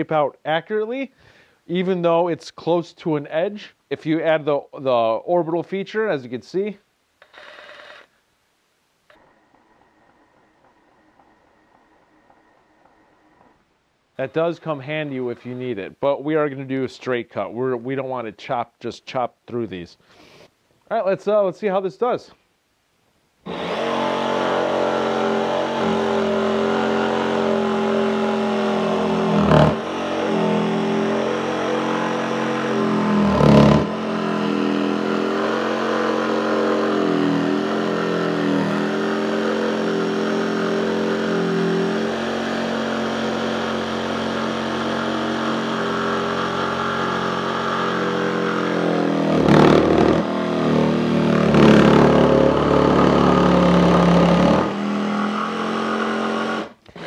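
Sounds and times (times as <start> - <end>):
jigsaw cutting wood: 7.2 - 8.1, 9.1 - 13.6, 23.5 - 57.0.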